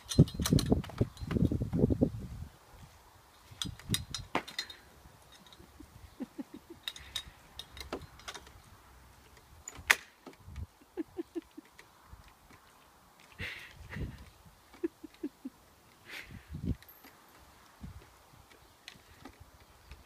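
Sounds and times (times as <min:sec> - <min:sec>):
metal chains clinking: 0:00.0 - 0:01.4, 0:03.5 - 0:09.9, 0:16.8 - 0:17.6.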